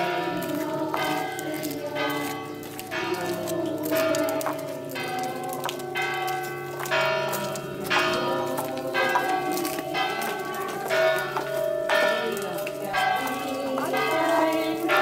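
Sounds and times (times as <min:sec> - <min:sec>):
church bells ringing: 0:00.0 - 0:15.0.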